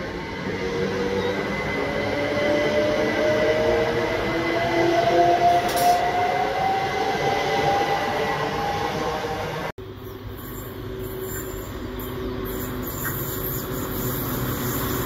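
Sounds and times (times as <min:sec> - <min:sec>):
train whine rising in pitch: 0:00.0 - 0:15.0.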